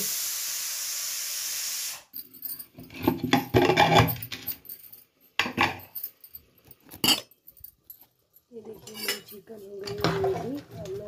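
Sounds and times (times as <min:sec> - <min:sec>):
pressure cooker hissing steam: 0:00.0 - 0:02.1
metal lid rattling and scraping: 0:02.8 - 0:04.5, 0:08.7 - 0:11.0.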